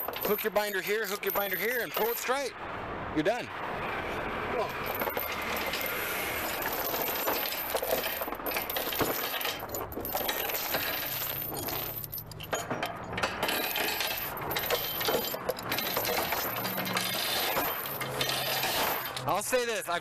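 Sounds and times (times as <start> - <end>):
chain clinking and rattling: 0.0 - 2.4, 4.6 - 19.3.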